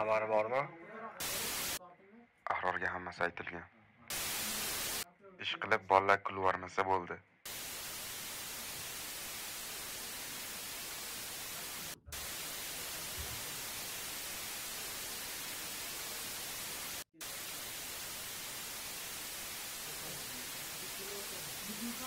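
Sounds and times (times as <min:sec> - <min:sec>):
static hiss: 0:01.2 - 0:01.8, 0:04.1 - 0:05.1, 0:07.5 - 0:22.0.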